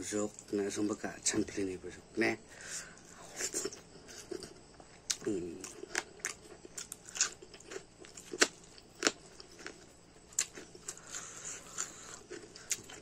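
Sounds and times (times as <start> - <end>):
man chewing food: 2.6 - 13.0.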